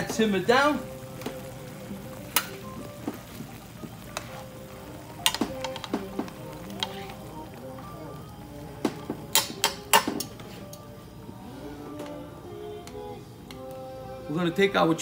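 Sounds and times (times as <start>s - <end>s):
sauce sizzling softly: 0.0s - 15.0s
metal tongs clinking on a pan: 5.2s - 6.0s, 9.3s - 10.4s.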